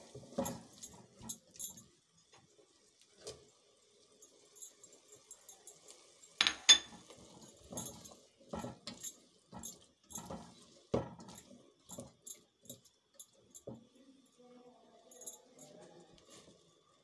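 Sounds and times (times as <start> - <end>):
plate clinking against pot: 6.4 - 7.0
spatula scraping and knocking pot: 6.4 - 12.2.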